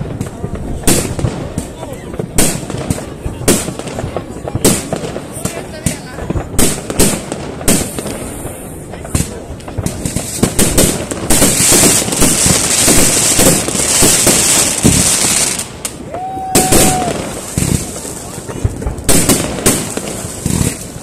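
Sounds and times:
fireworks bangs and cracks: 0.0 - 21.0
hissing crackle of firecrackers: 0.0 - 21.0
firework whistle: 13.0 - 17.7.

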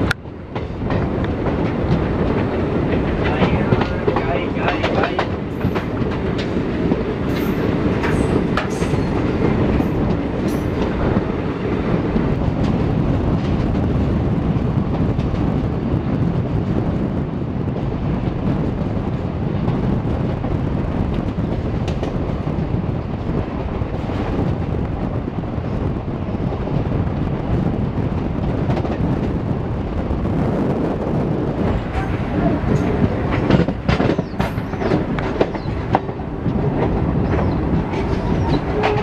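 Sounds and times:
train wheels rumbling on rail: 0.0 - 39.0
wheels clicking over rail joints: 31.7 - 39.0.

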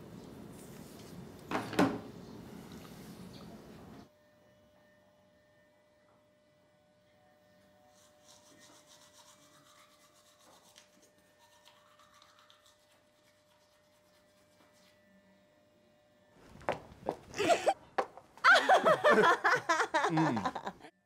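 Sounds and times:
toothbrush scrubbing teeth: 7.9 - 15.0.

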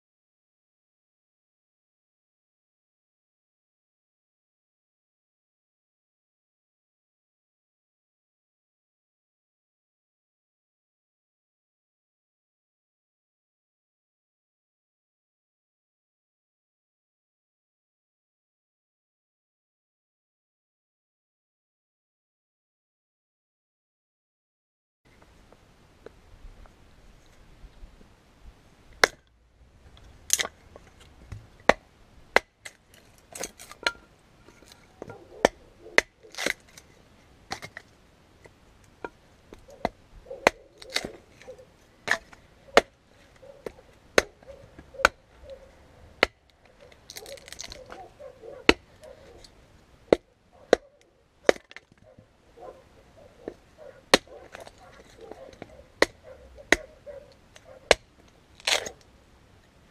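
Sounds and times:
hatchet chopping wood: 29.0 - 29.2, 51.5 - 51.8.

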